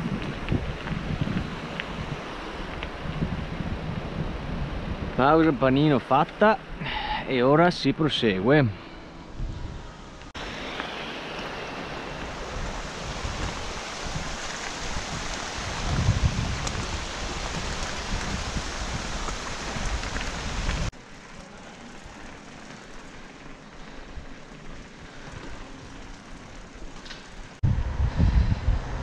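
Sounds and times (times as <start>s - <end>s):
tyres hissing on gravel: 0.0s - 3.4s, 10.3s - 27.6s
tyres rolling on paving: 0.0s - 4.0s, 10.3s - 27.6s
air over camera: 27.6s - 29.0s
low rumble: 27.6s - 29.0s.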